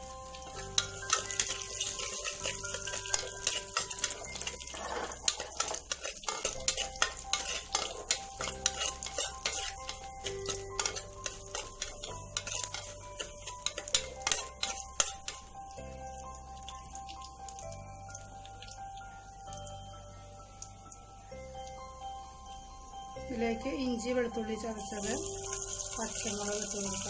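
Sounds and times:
chillies sizzling in hot oil: 0.0s - 27.0s
metal spoon scraping pot: 0.4s - 15.5s.

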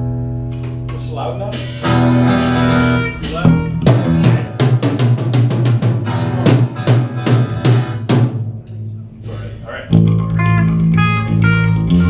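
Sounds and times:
low bass guitar notes: 0.0s - 12.0s
drum kit beat: 0.6s - 12.0s
rock band playing live: 1.5s - 8.6s, 9.9s - 12.0s.

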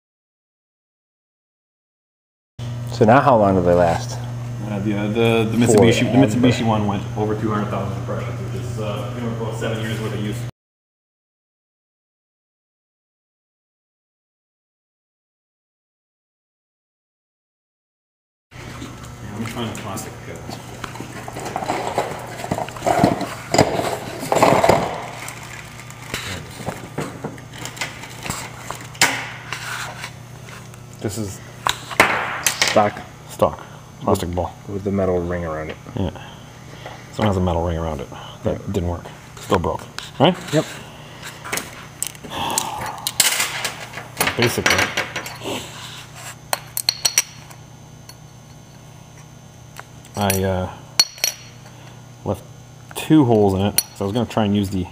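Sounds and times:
low machine hum: 2.6s - 10.5s, 18.6s - 54.9s
metal parts clinking: 50.2s - 51.5s.

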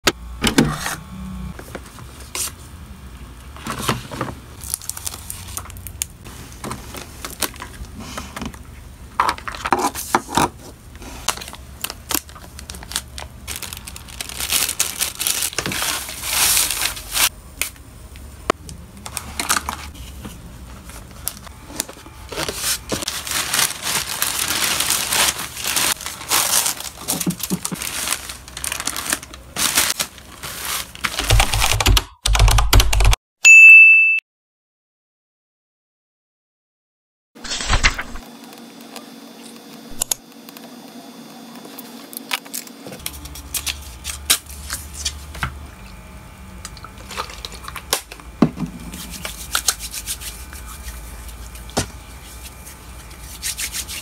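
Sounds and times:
plastic packaging crinkling: 4.6s - 7.9s, 11.2s - 17.8s, 20.8s - 31.6s, 46.8s - 48.3s.

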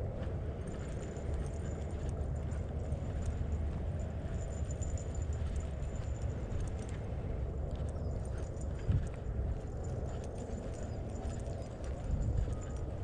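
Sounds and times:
footsteps on pavement: 0.1s - 13.0s.

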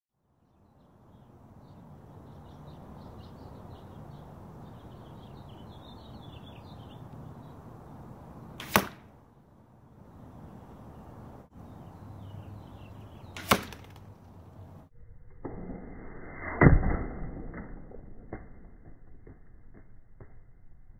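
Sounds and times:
arrow hitting foam target: 8.6s - 9.1s, 13.4s - 14.1s, 15.4s - 19.0s.

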